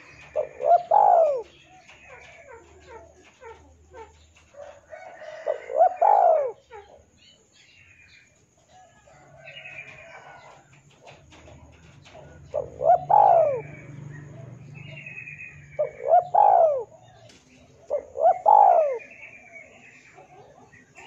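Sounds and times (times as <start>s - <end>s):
high bird chirping: 0.0s - 4.5s, 11.9s - 21.0s
dove cooing: 0.0s - 7.4s, 9.1s - 21.0s.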